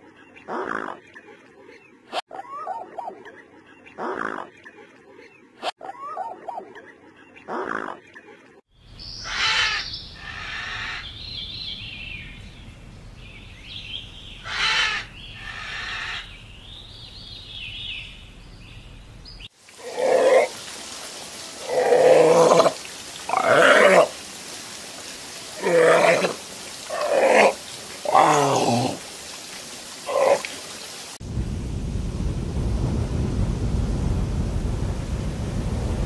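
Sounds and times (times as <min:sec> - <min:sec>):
squeaky animal calls: 0:09.2 - 0:11.0, 0:14.4 - 0:16.3.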